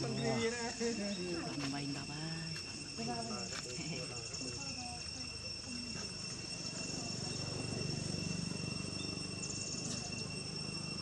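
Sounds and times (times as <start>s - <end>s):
insect trill: 0.0s - 11.0s
insects droning: 0.0s - 11.0s.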